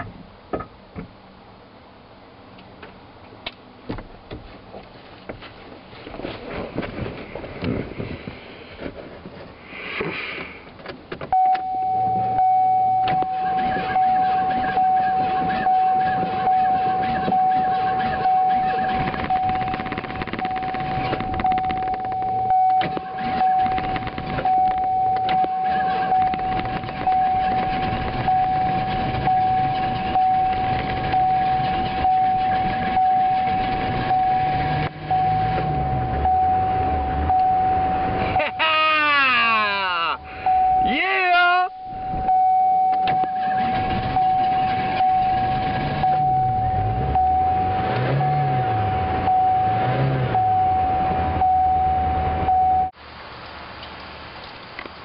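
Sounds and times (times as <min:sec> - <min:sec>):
car engine starting and running: 0:00.0 - 0:55.0
steady high-pitched tone: 0:11.4 - 0:49.8.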